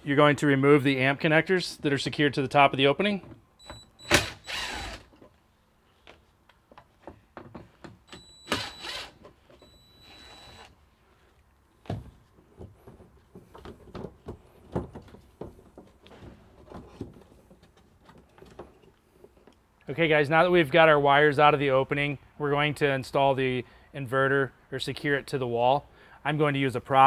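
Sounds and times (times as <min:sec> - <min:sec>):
cordless drill motor whine: 0:04.0 - 0:05.1, 0:08.2 - 0:10.8.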